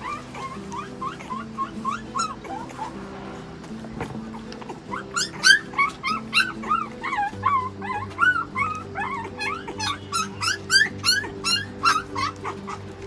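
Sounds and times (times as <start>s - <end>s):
puppy whimpering and squeaking: 0.0s - 3.0s, 4.3s - 13.0s
background music with held notes: 0.0s - 13.0s.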